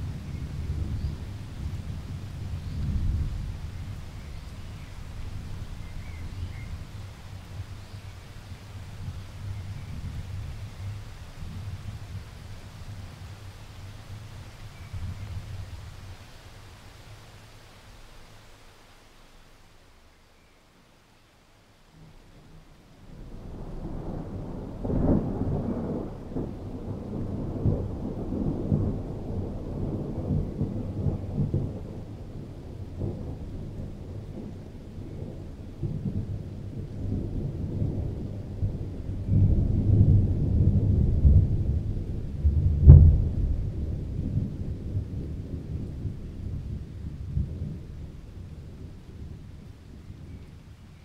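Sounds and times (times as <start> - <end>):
thunder rumbling: 0.0 - 18.6, 23.0 - 51.0
sharp thunder crack: 37.1 - 46.2.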